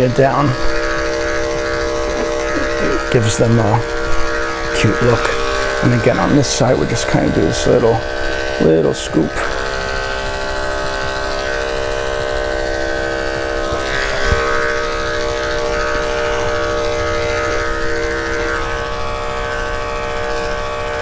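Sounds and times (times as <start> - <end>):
electric clipper buzzing: 0.0 - 21.0.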